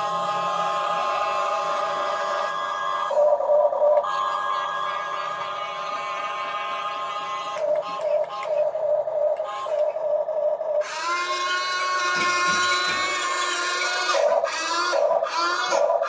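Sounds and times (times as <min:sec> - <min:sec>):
toy excavator motors whining: 0:00.0 - 0:10.0, 0:10.8 - 0:16.0.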